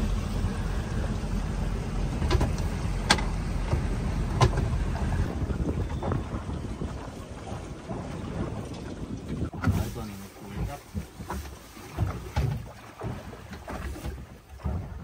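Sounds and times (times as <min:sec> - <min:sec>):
boat engine rumble: 0:00.0 - 0:15.0
wind on microphone: 0:03.9 - 0:11.4.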